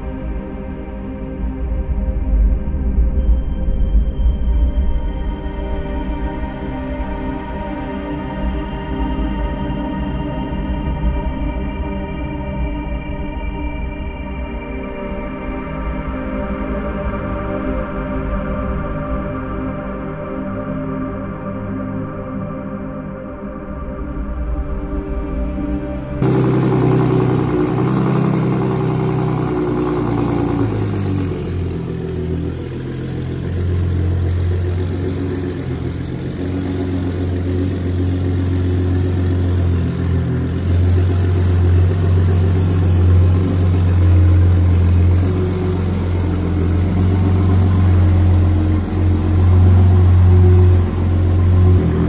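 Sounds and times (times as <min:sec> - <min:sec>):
pickup truck engine idling: 0:26.2 - 0:51.8.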